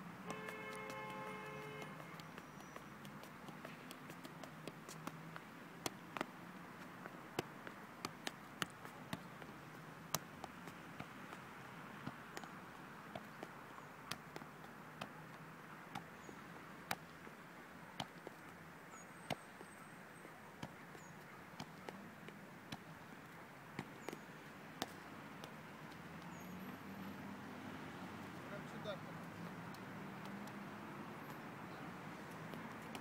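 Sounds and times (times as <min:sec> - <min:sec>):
faint outdoor background: 0:00.0 - 0:33.0
football taps off feet: 0:00.2 - 0:11.4, 0:14.1 - 0:17.2, 0:18.0 - 0:18.5, 0:20.6 - 0:22.9, 0:23.7 - 0:26.3, 0:30.2 - 0:30.6, 0:32.4 - 0:33.0.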